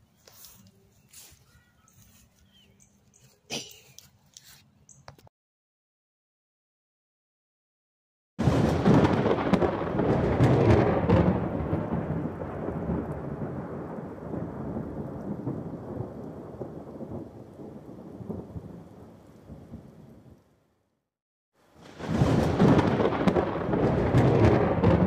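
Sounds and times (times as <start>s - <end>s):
crackling thunderclap: 8.4s - 20.6s, 21.7s - 25.0s
thunder rumble: 8.4s - 20.6s, 21.7s - 25.0s.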